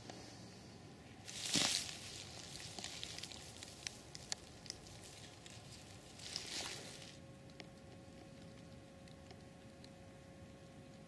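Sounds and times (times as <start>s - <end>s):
dry leaves crackling: 1.2s - 7.2s.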